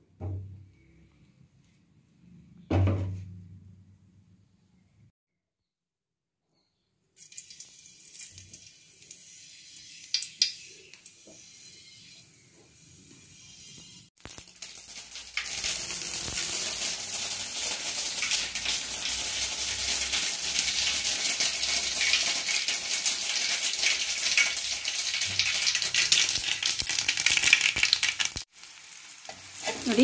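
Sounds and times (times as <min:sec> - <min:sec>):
seeds sizzling in hot oil: 0:07.2 - 0:30.0.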